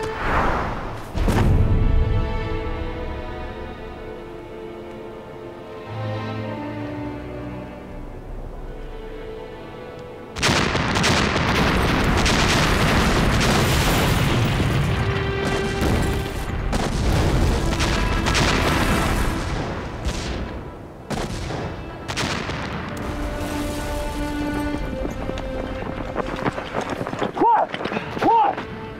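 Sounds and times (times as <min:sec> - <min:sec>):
dramatic film score: 0:00.0 - 0:28.9
loud explosion: 0:10.4 - 0:23.8
rumbling and crashing: 0:10.4 - 0:28.8.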